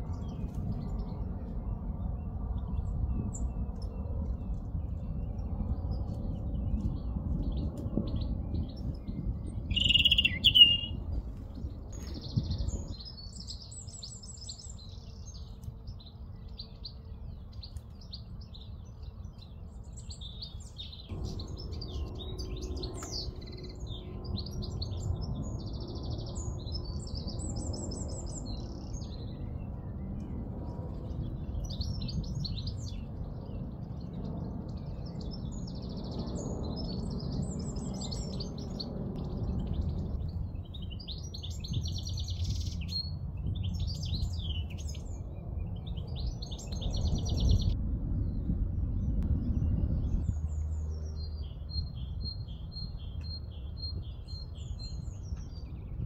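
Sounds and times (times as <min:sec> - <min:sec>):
low background rumble: 0:00.0 - 0:56.0
songbirds singing and chirping: 0:00.0 - 0:56.0
high rapid bird trill: 0:09.6 - 0:11.1.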